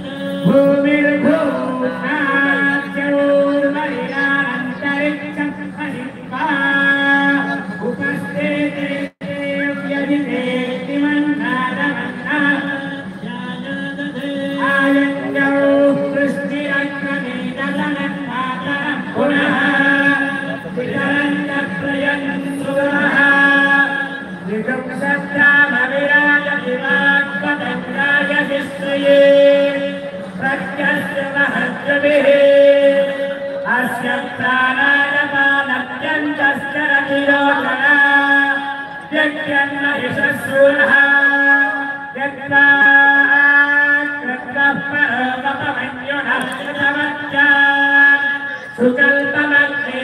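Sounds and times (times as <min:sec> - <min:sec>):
devotional chanting: 0:00.0 - 0:50.0.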